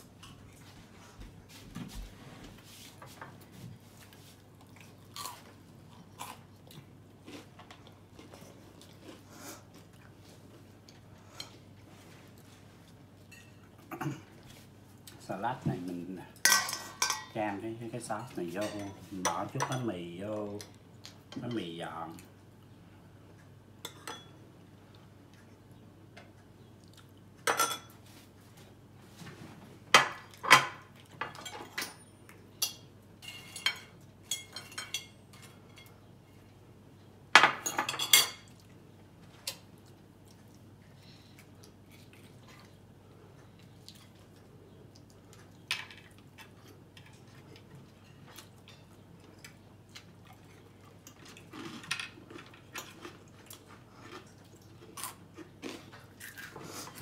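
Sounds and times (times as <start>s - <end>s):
cutlery clinking on plates: 16.4s - 17.3s, 27.4s - 28.0s, 32.6s - 35.9s.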